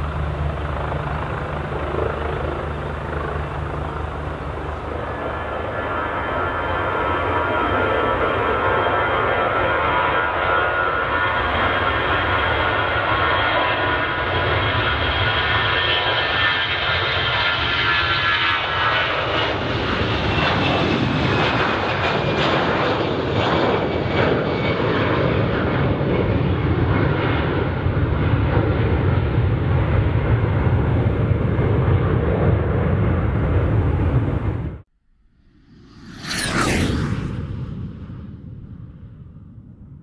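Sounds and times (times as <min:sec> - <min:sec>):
deep jet rumble: 0:00.0 - 0:15.4, 0:18.8 - 0:40.0
jet engine whine: 0:00.0 - 0:40.0.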